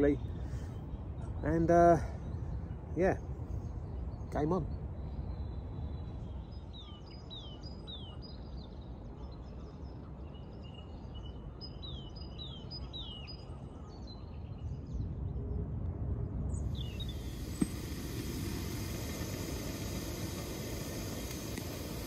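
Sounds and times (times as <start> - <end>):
wind rumble on microphone: 0.0 - 22.0
small bird calling: 16.7 - 22.0.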